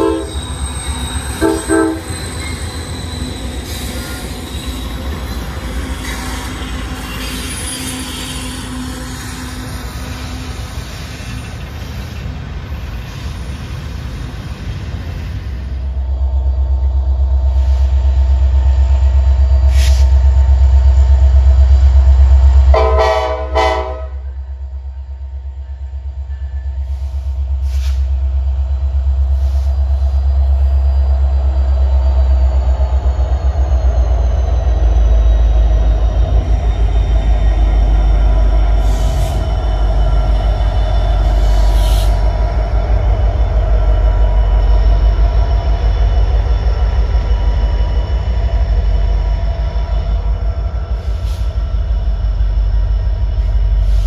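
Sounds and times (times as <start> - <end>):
locomotive horn blast: 0.0 - 0.4, 1.4 - 2.1, 22.7 - 24.3
wheel squeal: 0.0 - 12.3
diesel locomotives rumbling: 0.0 - 54.0.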